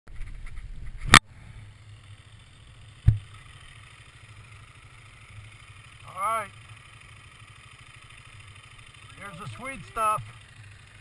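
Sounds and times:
dirt bike engines idling: 0.2s - 11.0s
sharp knock on camera: 3.0s - 3.3s.

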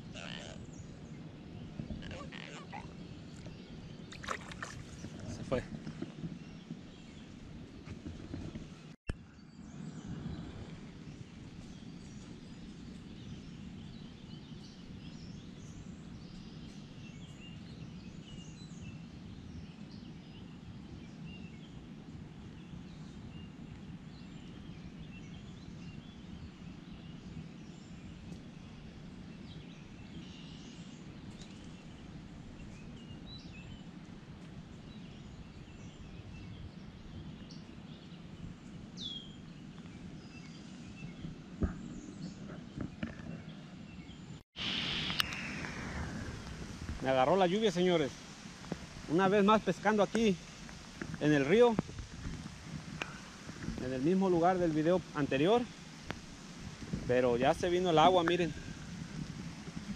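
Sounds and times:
rain falling: 44.6s - 59.9s.

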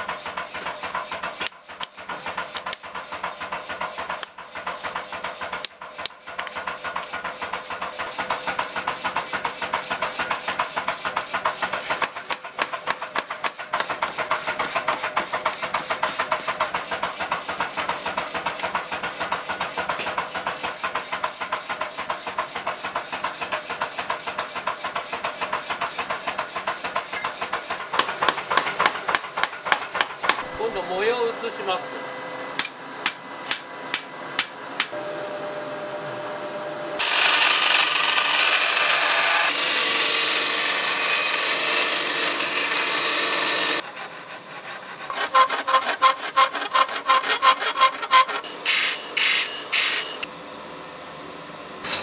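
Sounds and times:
power hammer pounding metal: 0.0s - 30.8s.

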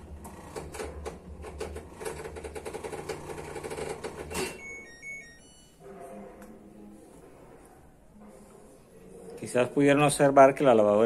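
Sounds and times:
washing machine hum: 0.0s - 5.3s.

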